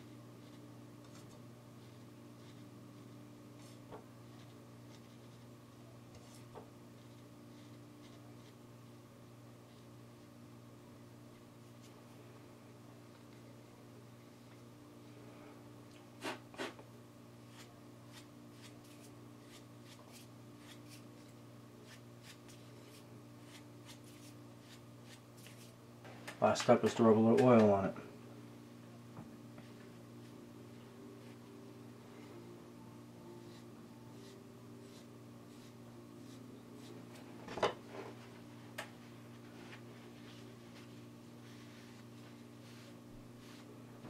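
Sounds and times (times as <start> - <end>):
low steady hum: 0.0 - 44.0
dry rubbing strokes on wood: 33.4 - 37.2, 39.5 - 43.7.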